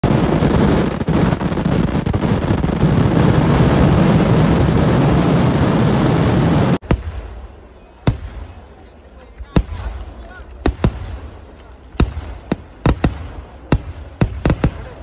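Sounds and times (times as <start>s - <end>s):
fireworks explosions: 0.0s - 15.0s
scattered cracks: 9.0s - 12.6s.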